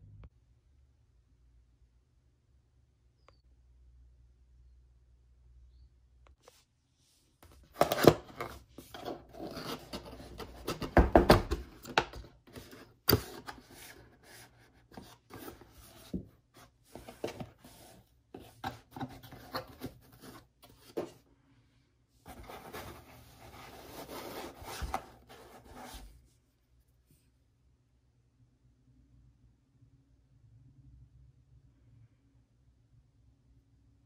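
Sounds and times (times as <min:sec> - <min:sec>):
cardboard and foam packaging rustling: 0:07.5 - 0:21.2, 0:22.3 - 0:26.3.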